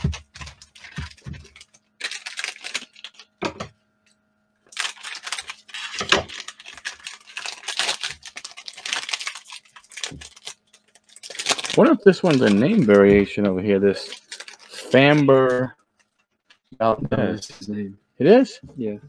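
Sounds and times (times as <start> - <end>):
plastic wrapper crinkling and tearing: 0.0 - 3.4, 4.6 - 13.1, 13.9 - 16.7
cards riffling: 4.7 - 13.1.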